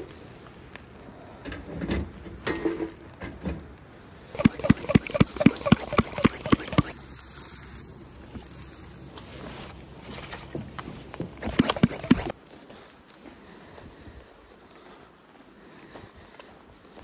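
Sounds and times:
hand pump sprayer strokes: 0:04.4 - 0:12.3.

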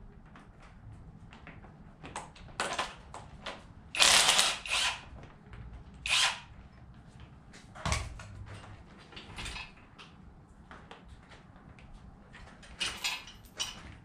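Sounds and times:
rasping power tool bursts: 0:04.0 - 0:05.0, 0:06.1 - 0:06.4
tool clicks and clinks: 0:04.0 - 0:05.1, 0:06.1 - 0:06.5, 0:12.8 - 0:14.0.

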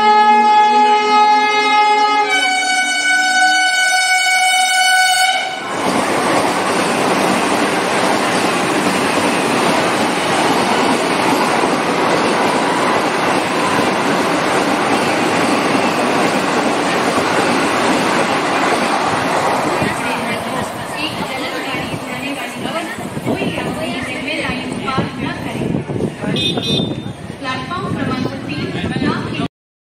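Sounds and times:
train horn blast: 0:00.0 - 0:05.8, 0:26.4 - 0:27.2
train rushing past: 0:00.0 - 0:29.5.

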